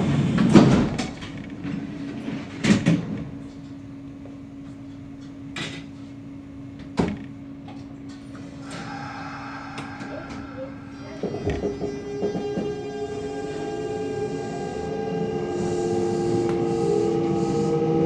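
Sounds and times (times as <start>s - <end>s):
train low hum: 0.0s - 18.0s.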